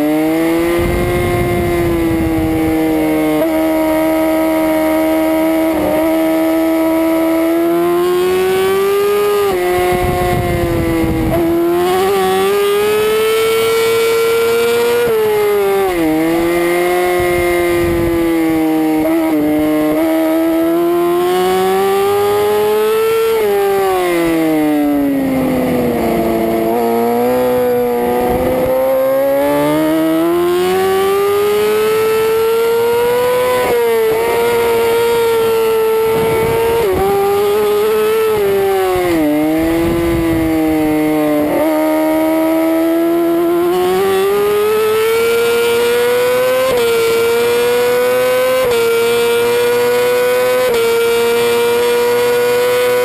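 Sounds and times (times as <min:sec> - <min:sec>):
motorcycle engine revving: 0:00.0 - 0:53.0
rushing wind noise: 0:00.5 - 0:06.4, 0:08.1 - 0:14.2, 0:14.8 - 0:20.0, 0:24.0 - 0:31.7, 0:32.8 - 0:41.7.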